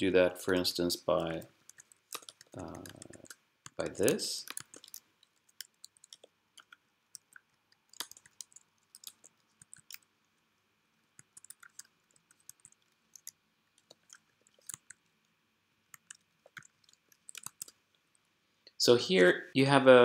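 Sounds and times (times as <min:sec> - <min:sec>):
computer keys clicking: 0:00.5 - 0:10.1, 0:11.2 - 0:15.1, 0:15.9 - 0:17.8.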